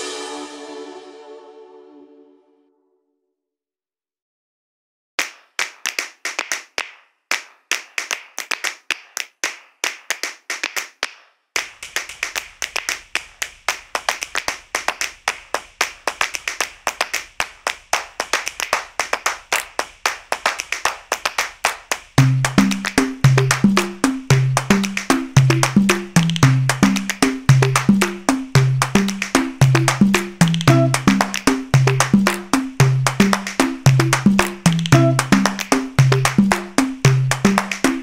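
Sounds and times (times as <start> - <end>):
hands clapping: 5.2 - 38.0
low bass line: 28.6 - 31.2, 32.8 - 36.5.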